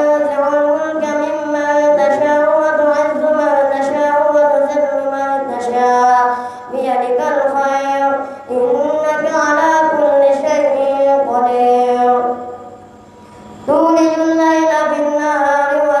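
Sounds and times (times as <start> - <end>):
boy chanting recitation: 0.0 - 12.8, 13.5 - 16.0
boy breathing: 6.3 - 6.8, 8.2 - 8.5.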